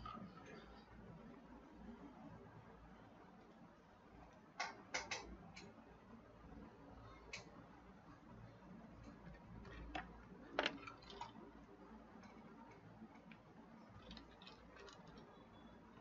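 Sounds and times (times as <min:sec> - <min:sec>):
faint clicks and taps: 0:12.1 - 0:15.7.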